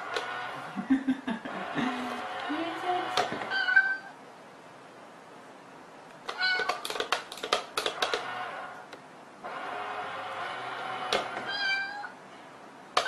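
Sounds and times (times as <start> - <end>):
cat meowing: 3.5 - 4.2, 6.3 - 6.8, 11.4 - 12.2
toy clicks and taps: 6.3 - 8.3.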